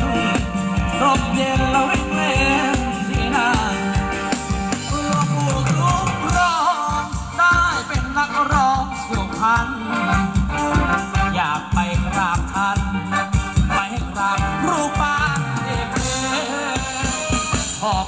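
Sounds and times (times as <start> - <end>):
live band dance music: 0.0 - 18.0
steady drum beat: 0.0 - 18.0.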